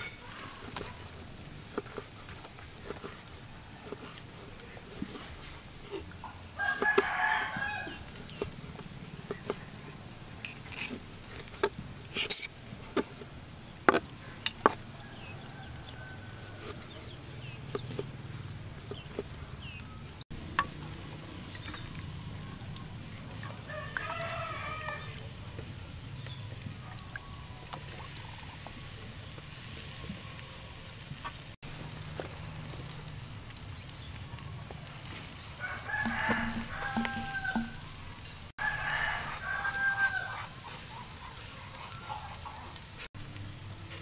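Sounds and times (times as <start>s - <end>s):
rooster crowing: 6.6s - 8.1s, 14.8s - 17.0s, 23.5s - 25.2s, 35.6s - 37.9s, 38.6s - 40.6s.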